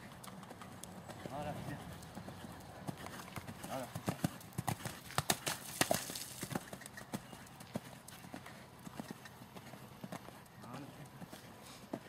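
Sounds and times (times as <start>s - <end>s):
horse hoofbeats on sand: 0.3s - 12.0s.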